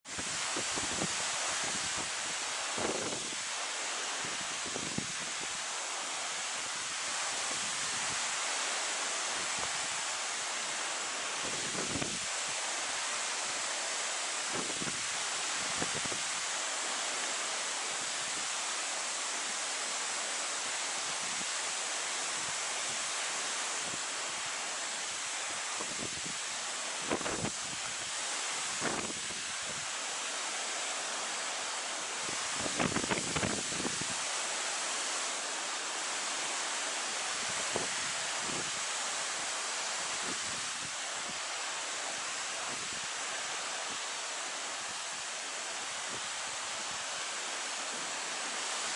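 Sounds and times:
steady outdoor hiss: 0:00.0 - 0:48.9
water rushing: 0:00.1 - 0:48.9
wind buffeting microphone: 0:32.5 - 0:34.2.

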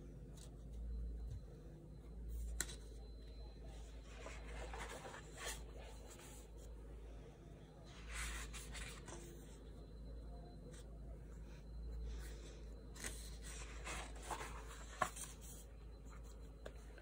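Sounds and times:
low steady hum: 0:00.0 - 0:17.0
paper page rustling: 0:04.0 - 0:06.5, 0:08.0 - 0:09.3, 0:13.0 - 0:16.2.

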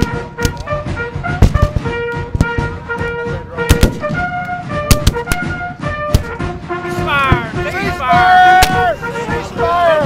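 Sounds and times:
wind instrument holding notes: 0:00.0 - 0:10.0
musket shots: 0:01.3 - 0:02.7, 0:03.7 - 0:06.5.

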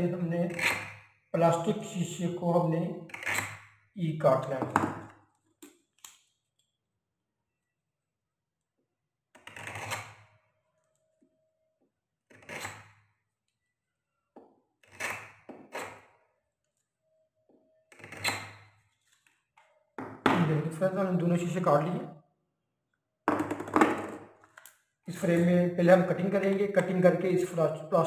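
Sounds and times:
pen scratching on plastic lens: 0:03.0 - 0:03.8, 0:09.4 - 0:10.4, 0:17.9 - 0:18.8.

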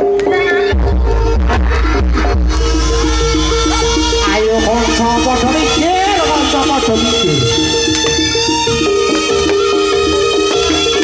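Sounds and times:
gamelan melody: 0:02.5 - 0:11.0.

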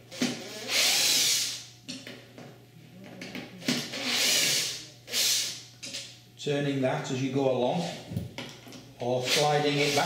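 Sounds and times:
cordless drill driver whirring: 0:00.1 - 0:01.6, 0:03.6 - 0:05.5.

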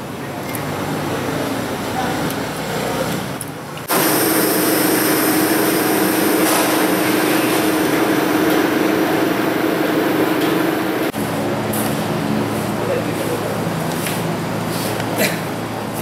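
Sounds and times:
machine humming and hissing: 0:03.9 - 0:13.3.

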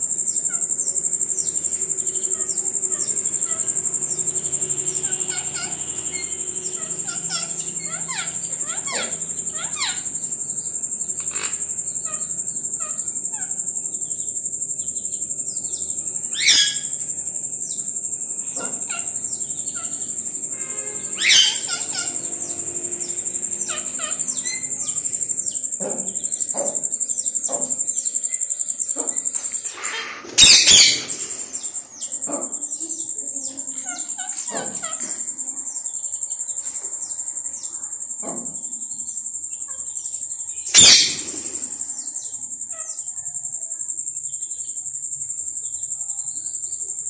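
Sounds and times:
parakeets chirping: 0:00.0 - 0:38.0, 0:39.0 - 0:43.2
parakeet squawks: 0:04.9 - 0:10.2, 0:11.2 - 0:13.6, 0:16.3 - 0:17.0, 0:18.5 - 0:22.7, 0:23.5 - 0:25.2, 0:29.0 - 0:31.6, 0:40.7 - 0:41.7.

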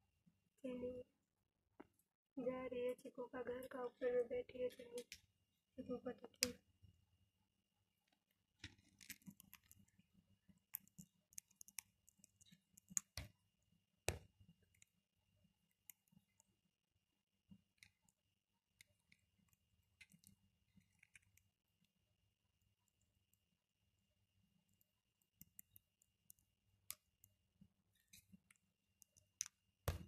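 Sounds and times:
beak clicking and crunching food: 0:08.6 - 0:16.7, 0:17.6 - 0:21.9, 0:24.6 - 0:30.0.

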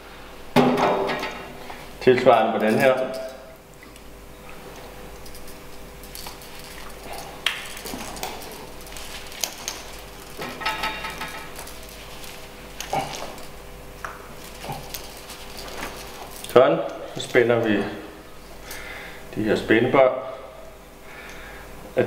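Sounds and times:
metal hose clamps clinking: 0:02.6 - 0:03.5.

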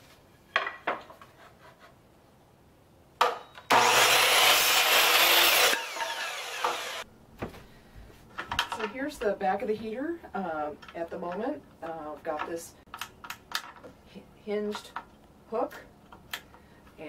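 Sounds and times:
miter saw cutting wood: 0:03.7 - 0:07.0.

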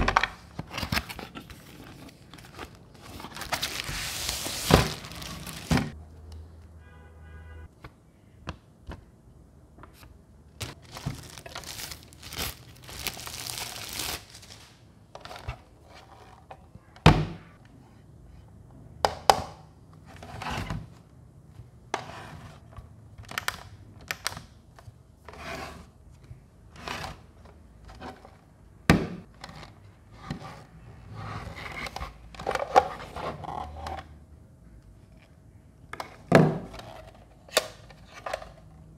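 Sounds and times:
paper and plastic rustling: 0:00.4 - 0:06.0, 0:10.6 - 0:15.5.

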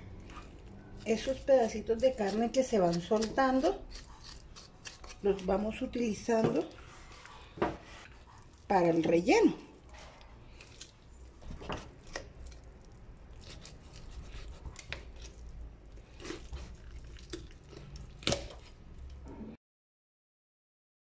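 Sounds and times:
wet squishes of raw chicken: 0:06.7 - 0:19.2.

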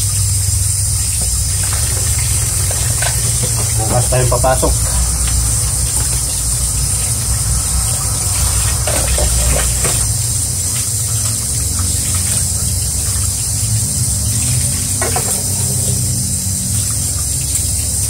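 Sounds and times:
steady low hum: 0:00.0 - 0:18.0
tap water running into sink: 0:00.0 - 0:18.0
dishes clinking: 0:15.0 - 0:15.9.

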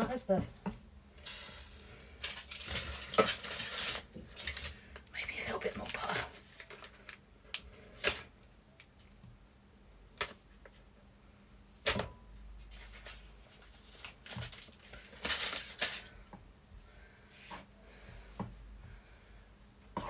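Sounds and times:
stirring scraping rustle: 0:01.3 - 0:04.8.

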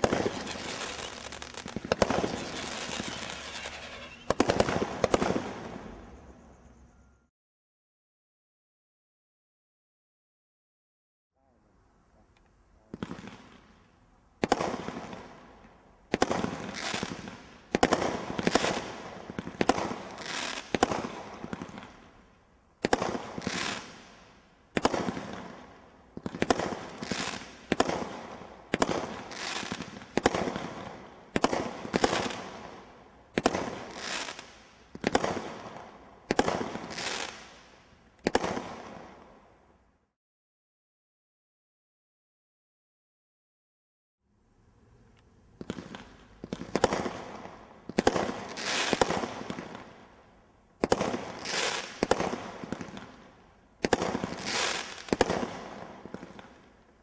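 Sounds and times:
roman candle firework bangs: 0:00.0 - 0:06.0, 0:14.4 - 0:15.3, 0:16.1 - 0:21.9, 0:22.8 - 0:24.0, 0:24.7 - 0:25.6, 0:26.2 - 0:32.7, 0:33.3 - 0:37.5, 0:38.2 - 0:39.2, 0:45.6 - 0:49.8, 0:50.8 - 0:53.0, 0:53.8 - 0:56.5.

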